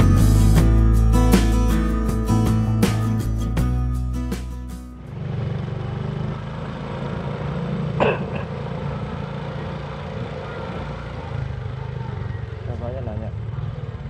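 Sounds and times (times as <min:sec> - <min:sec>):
road and wind noise: 0:05.0 - 0:14.0
scooter engine running: 0:05.0 - 0:14.0.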